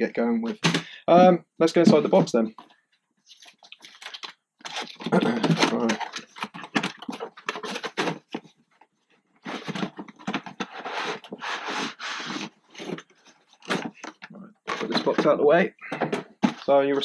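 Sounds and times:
box lid scraping: 0:04.6 - 0:08.5, 0:09.4 - 0:15.2.

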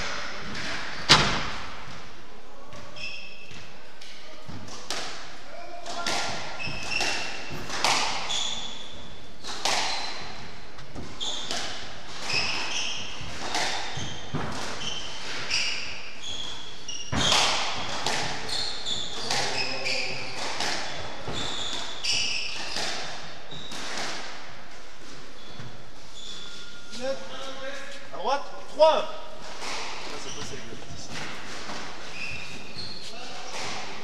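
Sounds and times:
shoes squeaking on wooden floor: 0:02.8 - 0:03.7, 0:06.0 - 0:28.1, 0:29.4 - 0:34.0
squash ball struck by rackets: 0:05.9 - 0:08.3, 0:09.4 - 0:10.2, 0:10.8 - 0:15.5, 0:17.1 - 0:18.5, 0:19.2 - 0:19.6, 0:20.3 - 0:21.9, 0:22.5 - 0:24.5, 0:29.4 - 0:30.2.

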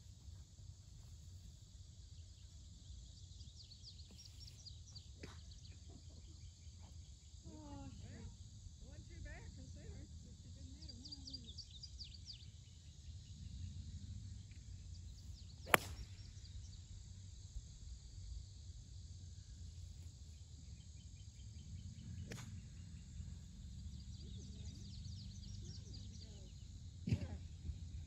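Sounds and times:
golf club striking ball: 0:15.7 - 0:16.2.

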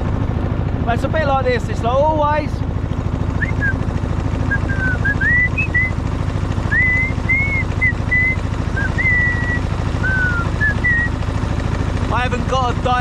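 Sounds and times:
boat engine throbbing: 0:00.0 - 0:13.0
man whistling a tune: 0:03.4 - 0:03.8, 0:04.5 - 0:05.9, 0:06.7 - 0:11.1.

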